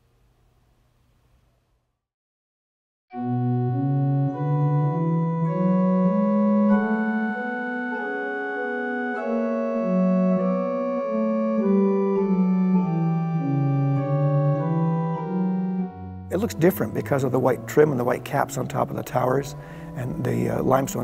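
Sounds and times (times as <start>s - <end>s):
pipe organ chords: 3.1s - 21.0s.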